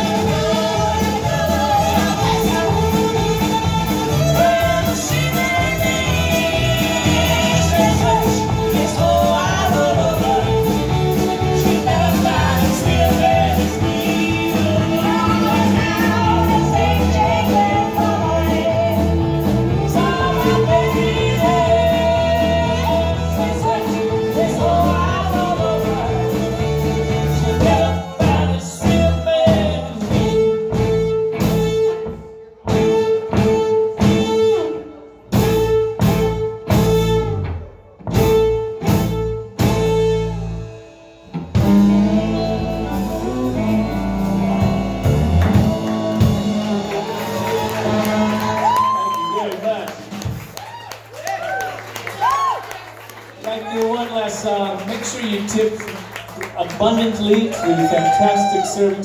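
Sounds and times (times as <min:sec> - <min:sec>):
woman singing: 0:00.0 - 0:30.3
blues-rock band playing: 0:00.0 - 0:53.3.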